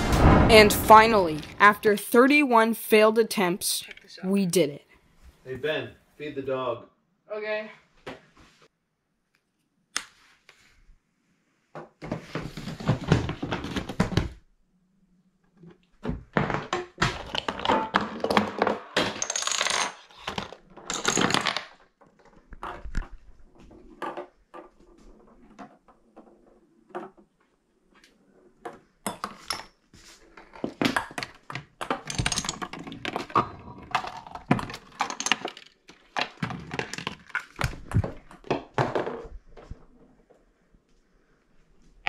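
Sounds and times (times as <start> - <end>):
small objects knocking and rattling: 16.1 - 27.2, 29.1 - 39.8
dominoes toppling: 19.2 - 21.8.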